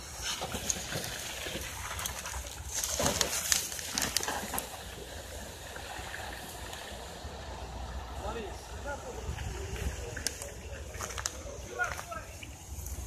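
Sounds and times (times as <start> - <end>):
fire crackling and snapping: 0.0 - 7.1, 10.0 - 13.0.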